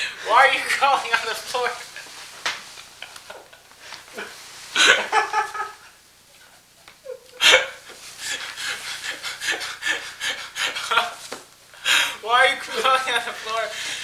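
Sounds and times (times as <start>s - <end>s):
people laughing: 2.7s - 5.9s, 7.0s - 11.3s, 12.6s - 14.0s.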